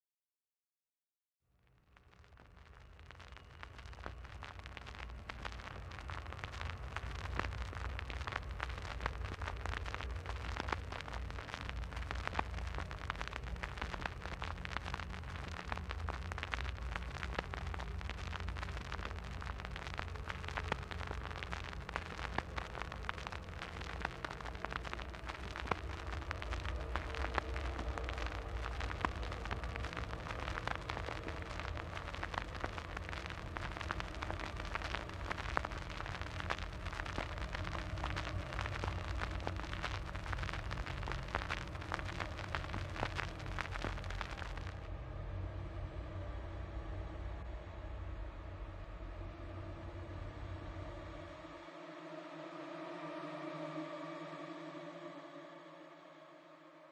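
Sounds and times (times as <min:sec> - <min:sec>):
vinyl record crackle and pops: 0:01.5 - 0:44.9
low rumble: 0:02.0 - 0:51.9.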